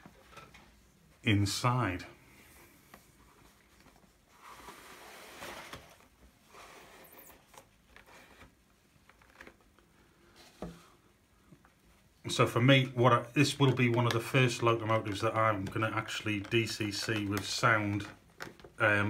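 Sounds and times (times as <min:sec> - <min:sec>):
cardboard sliding rustle: 0:02.6 - 0:11.0.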